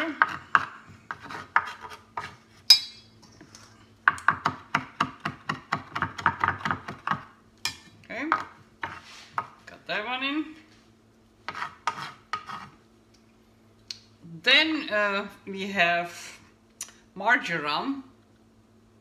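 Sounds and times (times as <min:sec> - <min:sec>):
knife chopping on wooden board: 0:00.0 - 0:02.8, 0:04.1 - 0:07.3, 0:11.5 - 0:12.7.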